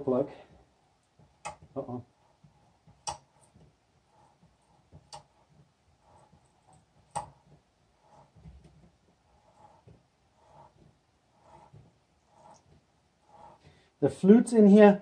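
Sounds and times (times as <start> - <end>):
metal-on-metal scraping: 2.2 - 13.8.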